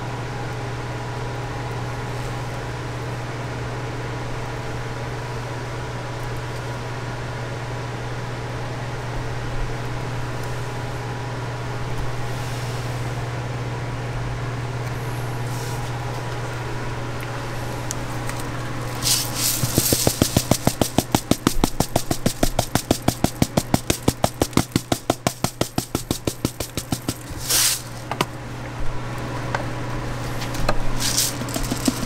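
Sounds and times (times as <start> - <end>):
low electrical hum: 0.0 - 32.0
sprinkles container rattling: 18.8 - 28.1, 31.0 - 32.0.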